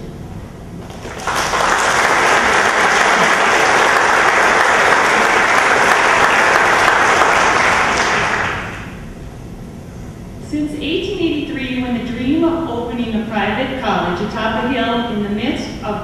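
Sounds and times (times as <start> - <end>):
audience applauding: 0.8 - 9.0.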